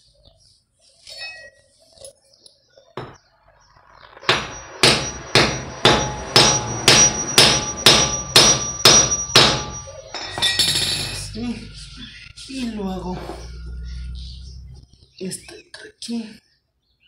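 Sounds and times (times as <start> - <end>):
hammer striking metal: 4.1 - 11.2.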